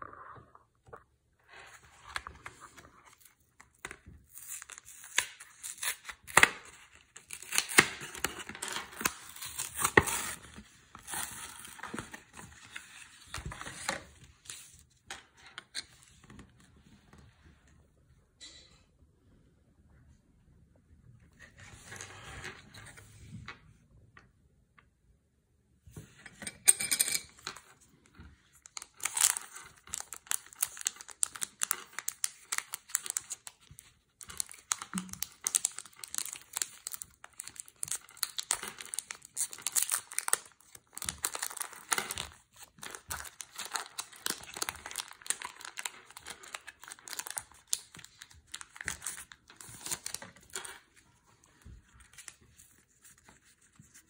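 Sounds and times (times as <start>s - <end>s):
foil wrapper tearing and crinkling: 4.3s - 10.4s, 28.8s - 33.6s, 34.2s - 50.6s.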